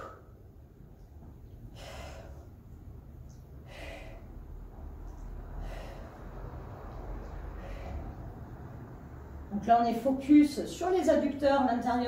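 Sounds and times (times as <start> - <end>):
woman breathing through the mouth: 0.0 - 0.4, 1.6 - 9.0
low steady rumble: 0.0 - 12.0.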